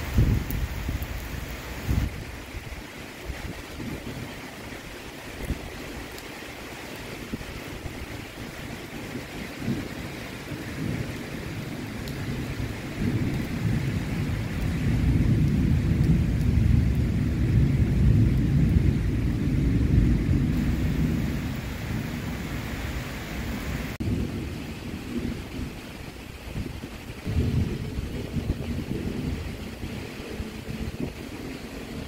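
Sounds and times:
low roll of thunder: 0:00.0 - 0:02.3, 0:08.9 - 0:32.0
rain falling: 0:00.0 - 0:32.0.

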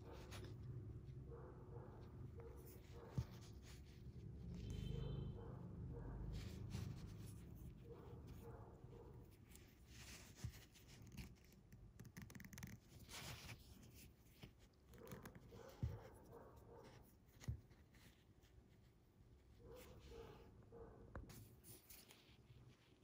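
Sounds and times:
fishing line rustling and scratching: 0:06.3 - 0:16.2.

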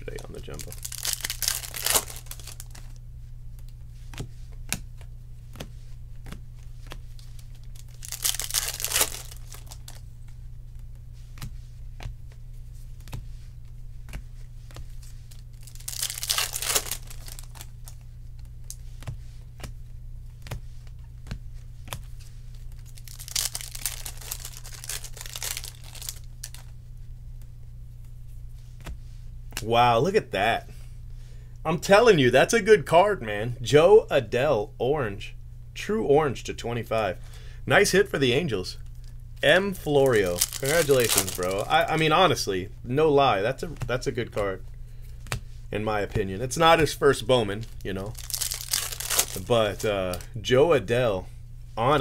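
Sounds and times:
card pack wrappers tearing: 0:00.0 - 0:03.0, 0:07.6 - 0:10.0, 0:15.3 - 0:18.0, 0:22.7 - 0:26.7, 0:39.9 - 0:42.0, 0:47.6 - 0:50.2
steady low hum: 0:00.0 - 0:52.0
cards clicking and snapping: 0:15.7 - 0:18.0.

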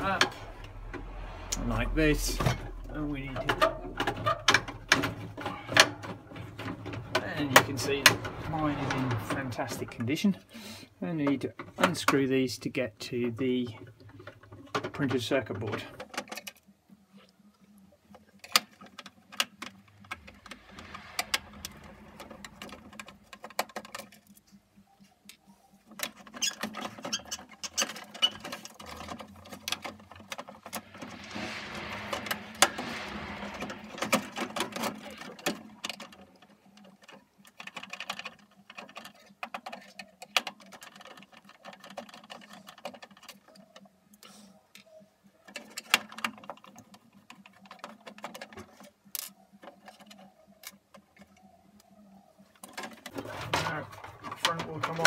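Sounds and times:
metal scraping on plastic: 0:25.9 - 0:43.4.

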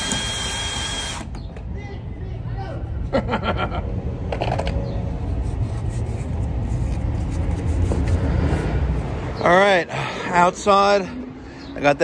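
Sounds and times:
plastic pipe rubbing and handling: 0:04.4 - 0:08.8.

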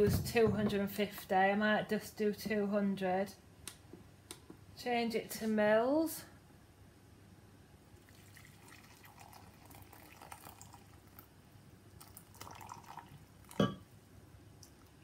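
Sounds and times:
water trickling into a jug: 0:08.0 - 0:11.3, 0:11.9 - 0:13.8.

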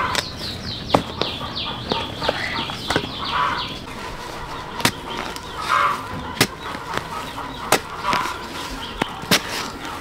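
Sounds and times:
birds calling: 0:00.0 - 0:10.0.

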